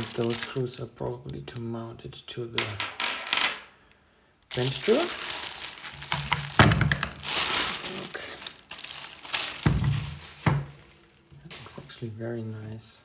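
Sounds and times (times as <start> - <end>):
plastic bag crinkling: 0.0 - 0.7, 4.5 - 12.1.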